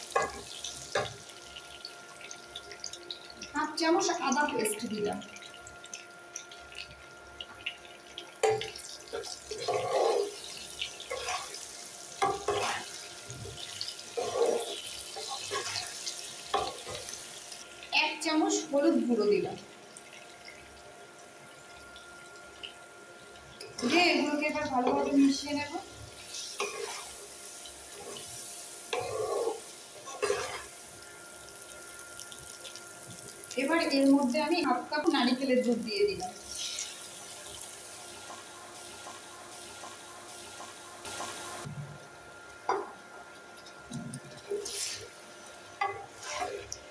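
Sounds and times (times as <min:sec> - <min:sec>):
food sizzling in oil: 0:00.0 - 0:46.9
spatula scraping a wok: 0:09.6 - 0:10.4, 0:11.0 - 0:11.6, 0:12.2 - 0:13.0, 0:14.1 - 0:16.9, 0:26.2 - 0:27.3, 0:27.9 - 0:30.7, 0:44.5 - 0:45.1, 0:45.9 - 0:46.7
spatula scraping in wok: 0:11.1 - 0:11.6, 0:12.2 - 0:13.0, 0:14.2 - 0:16.0, 0:26.3 - 0:27.2, 0:46.0 - 0:46.7.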